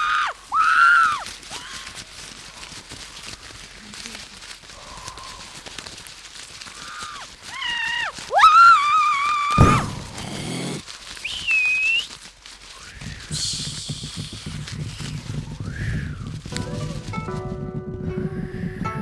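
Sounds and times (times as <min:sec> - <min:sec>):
high-pitched wailing cries: 0:00.0 - 0:02.0, 0:06.7 - 0:10.8
sudden low thump: 0:09.6 - 0:10.2
burst of hiss: 0:12.7 - 0:16.4.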